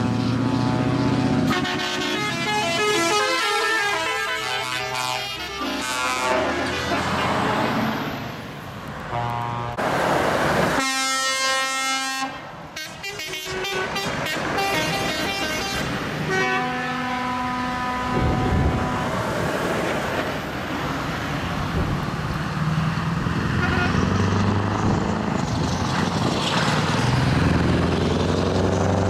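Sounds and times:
trucks driving by: 0.0 - 29.0
truck air horn blasts: 0.3 - 7.8, 9.1 - 9.8, 10.8 - 19.2, 23.6 - 24.2.

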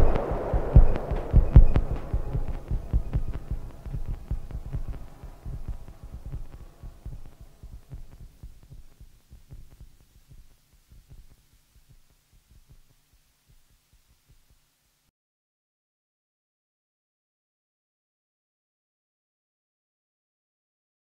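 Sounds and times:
low rapid throbbing pulses: 0.0 - 11.3.

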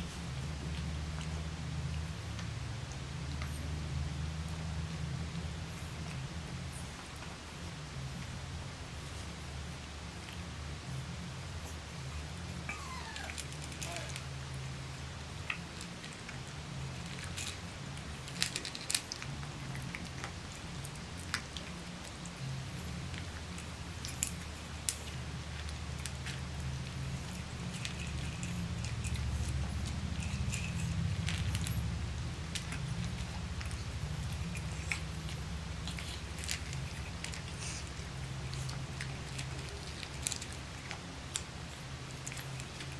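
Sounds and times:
low hum: 0.0 - 42.9
puppies crunching dry kibble: 0.0 - 42.9.

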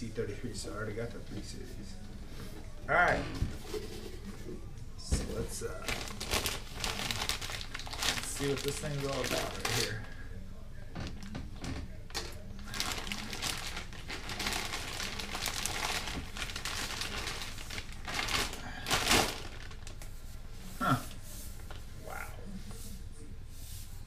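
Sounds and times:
plastic bag crinkling: 5.6 - 10.2, 11.0 - 20.3.

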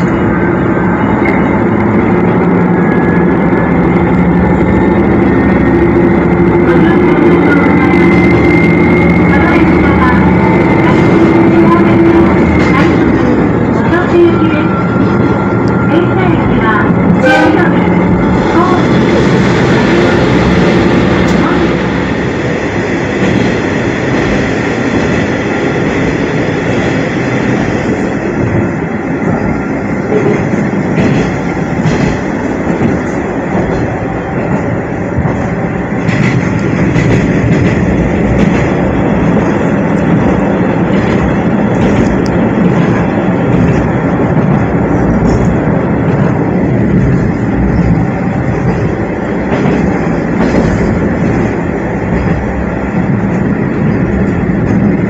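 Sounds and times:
wheels running on rails: 22.8 - 55.0.

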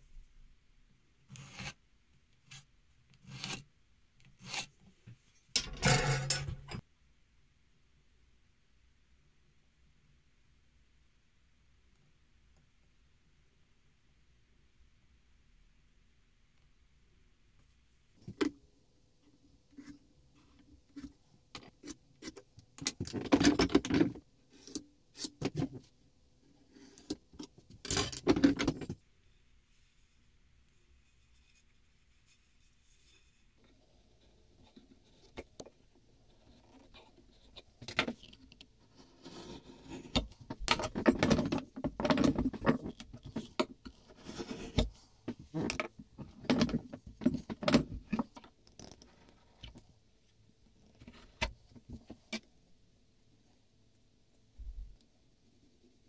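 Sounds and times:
pencil scrape: 1.3 - 1.8, 2.4 - 3.7, 4.3 - 4.8, 38.9 - 41.1, 43.4 - 45.7
pencil scratching on wood: 1.3 - 1.8, 2.5 - 3.6, 38.9 - 40.4, 43.4 - 45.0.

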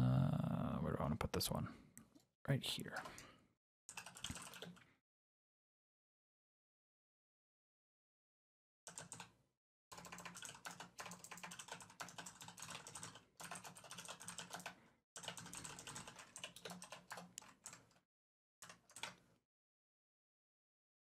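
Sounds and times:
typing on keyboard: 3.9 - 4.8, 8.9 - 18.0, 18.6 - 19.3.

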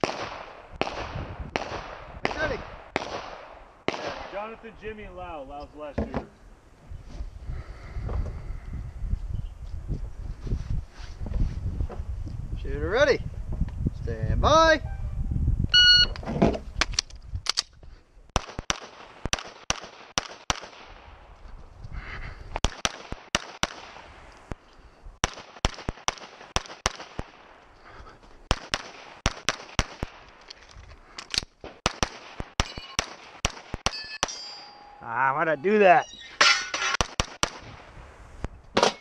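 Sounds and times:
rapid pistol fire: 0.0 - 4.5, 18.4 - 21.2, 22.6 - 24.1, 25.2 - 27.6, 28.5 - 30.3, 31.7 - 34.0, 37.0 - 37.9.

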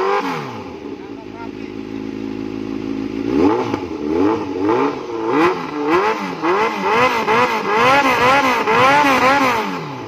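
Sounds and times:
motorcycle engine revving: 0.0 - 10.0.

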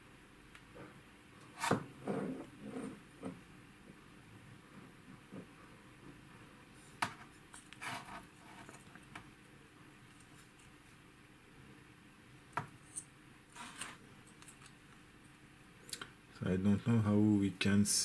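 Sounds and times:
faint handling rubs: 13.5 - 14.0
short scrape: 13.5 - 14.0.

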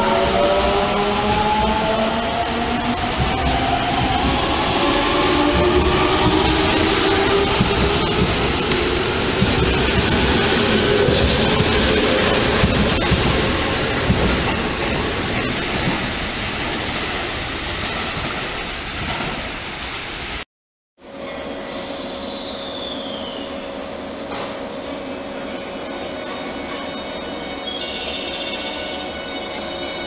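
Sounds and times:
electric train wheel and traction noise: 0.0 - 20.4.

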